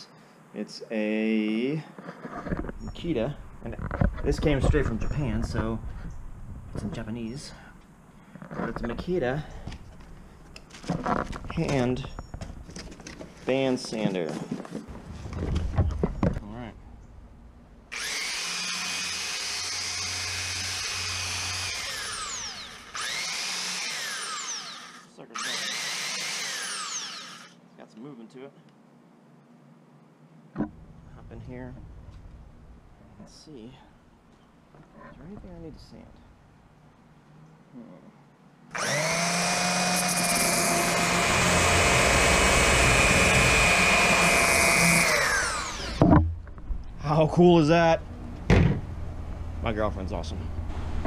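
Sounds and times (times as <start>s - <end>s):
belt sander whining: 17.9s - 27.6s, 38.7s - 46.2s.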